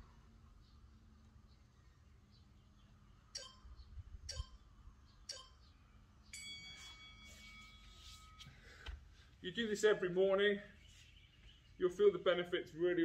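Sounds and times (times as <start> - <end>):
timer ticks: 3.3 - 3.7, 4.3 - 4.6, 5.2 - 5.7
ringing chime: 6.3 - 8.8.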